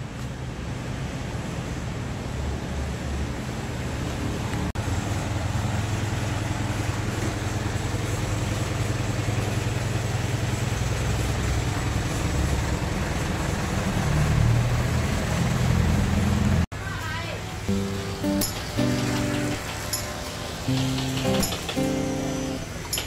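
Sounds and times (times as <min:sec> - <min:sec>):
traffic rumble: 0:00.0 - 0:23.0.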